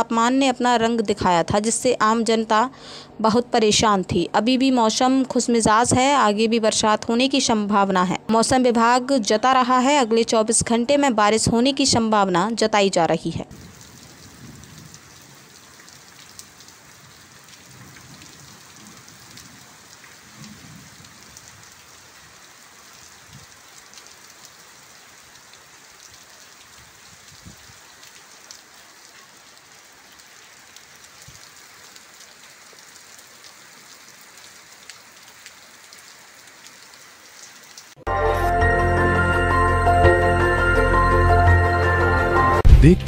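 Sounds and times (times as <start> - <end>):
heavy rain on standing water: 13.5 - 38.0.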